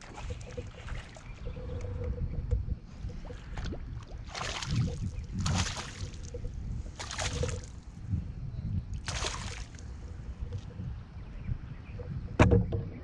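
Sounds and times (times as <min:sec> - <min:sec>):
fish thrashing and splashing: 0:03.3 - 0:07.9, 0:09.0 - 0:10.6.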